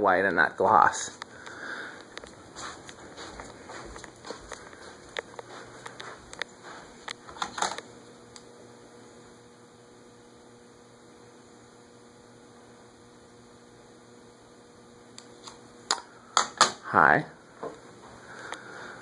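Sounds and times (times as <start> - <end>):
electrical mains hum: 0.0 - 19.0
sharp clicks and knocks: 6.3 - 7.9.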